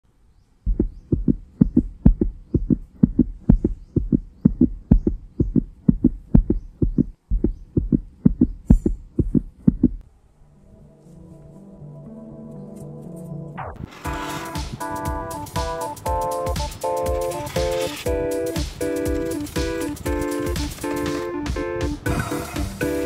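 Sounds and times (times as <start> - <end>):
heartbeat double thumps: 0.7 - 10.0, 18.1 - 23.0.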